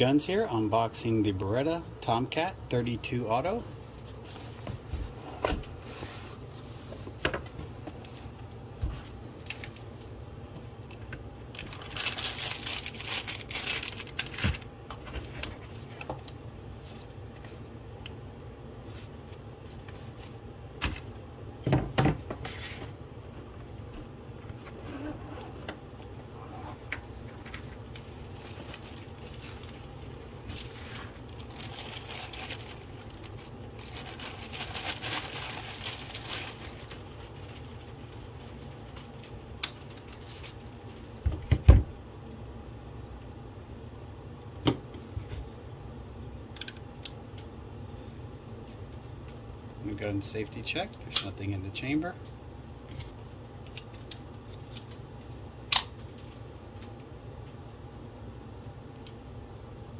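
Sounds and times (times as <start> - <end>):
plastic bag crinkling: 11.5 - 14.7, 27.8 - 37.8
cardboard rustling: 30.4 - 37.0.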